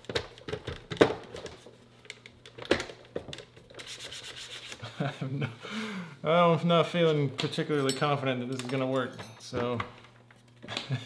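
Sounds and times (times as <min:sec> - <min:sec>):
cloth rubbing on plastic: 0:03.8 - 0:04.8.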